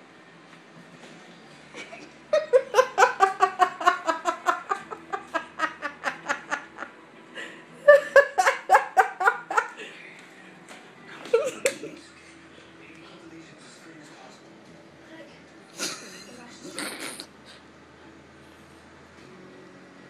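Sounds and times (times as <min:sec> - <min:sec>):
person laughing hard: 0:01.8 - 0:09.8.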